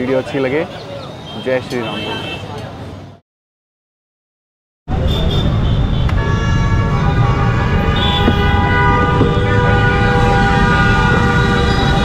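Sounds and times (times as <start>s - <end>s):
street traffic rumble: 0.0s - 3.2s, 4.9s - 12.0s
horn blaring: 5.0s - 12.0s.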